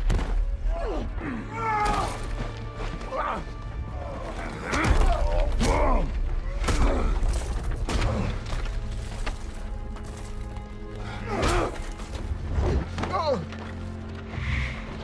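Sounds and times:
men grunting and crying out: 3.0s - 8.5s, 11.0s - 12.1s.

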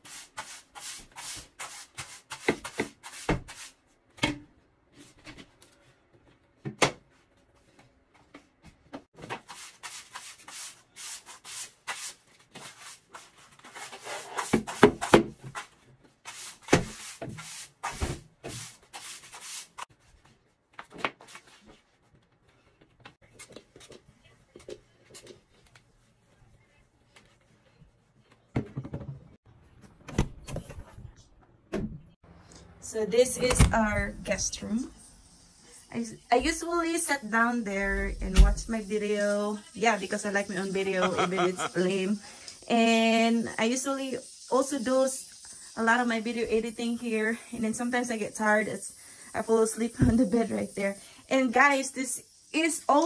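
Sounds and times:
broom sweeping floor: 0.0s - 4.0s, 7.4s - 22.0s, 33.8s - 53.0s.

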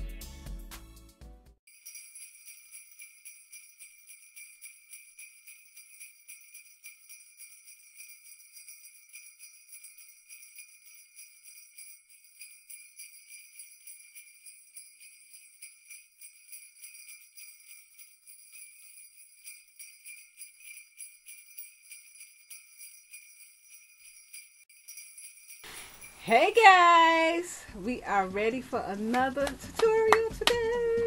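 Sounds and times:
jingle bells shaking: 1.7s - 31.0s.

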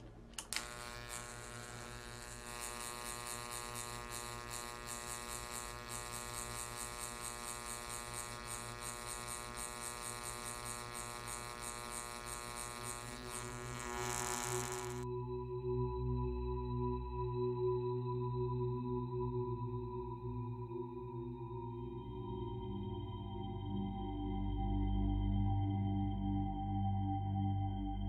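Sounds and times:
high-voltage arc buzzing: 0.0s - 15.1s
fluttering arc hiss: 0.4s - 15.0s.

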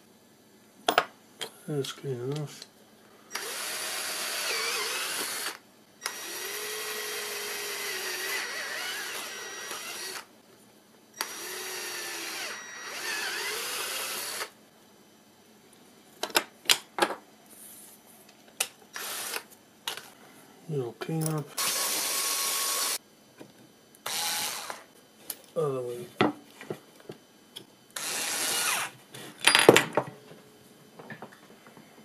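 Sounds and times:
power drill running: 3.3s - 10.3s, 11.2s - 14.6s, 18.9s - 19.4s, 21.6s - 23.0s, 24.0s - 24.9s, 28.0s - 28.9s.

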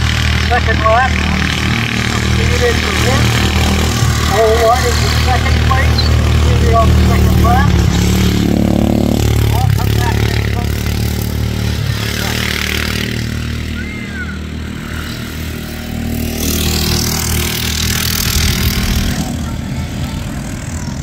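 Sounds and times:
lawnmower engine running: 0.0s - 21.0s
loud rushing noise: 0.0s - 21.0s.

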